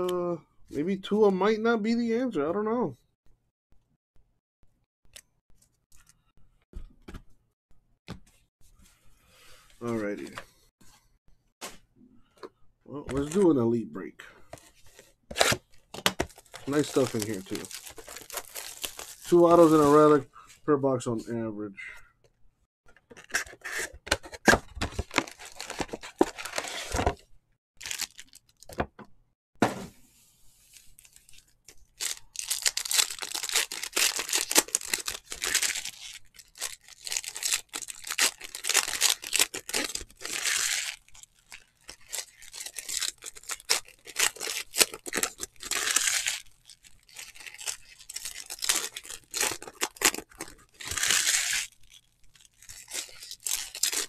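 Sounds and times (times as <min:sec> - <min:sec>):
wrapper tearing and crinkling: 0:15.4 - 0:15.6, 0:16.2 - 0:20.2, 0:24.9 - 0:27.2, 0:27.8 - 0:28.8, 0:31.0 - 0:54.0.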